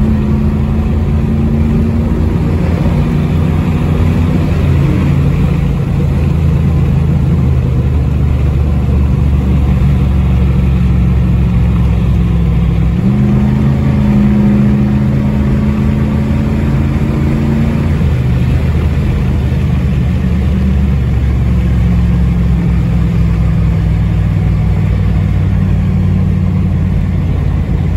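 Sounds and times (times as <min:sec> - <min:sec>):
car engine cruising: 0:00.0 - 0:27.9.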